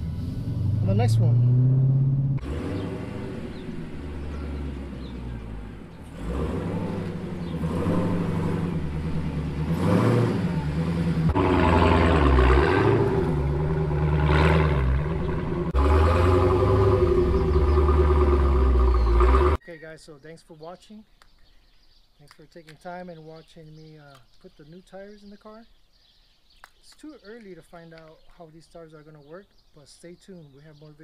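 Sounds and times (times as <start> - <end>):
car engine revving: 0.0 - 19.6.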